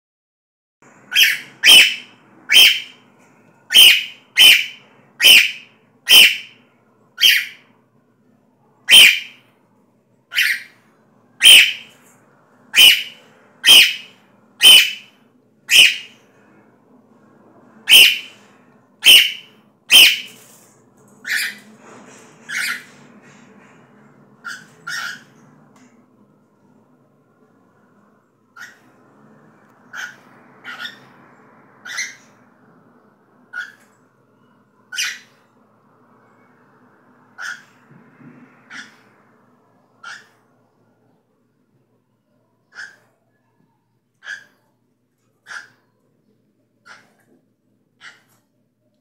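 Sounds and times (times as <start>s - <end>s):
cockatiel calling: 1.1s - 3.0s, 3.7s - 6.6s, 7.2s - 7.6s, 8.8s - 9.4s, 10.3s - 10.8s, 11.4s - 12.0s, 12.7s - 16.2s, 17.8s - 20.4s, 21.2s - 21.6s, 22.5s - 22.9s, 24.4s - 25.4s, 28.6s - 28.9s, 29.9s - 31.2s, 31.8s - 32.4s, 33.5s - 33.9s, 34.9s - 35.4s, 37.4s - 37.8s, 38.7s - 39.1s, 40.0s - 40.4s, 42.7s - 43.1s, 44.2s - 44.6s, 45.4s - 45.9s, 46.8s - 47.2s, 48.0s - 48.4s.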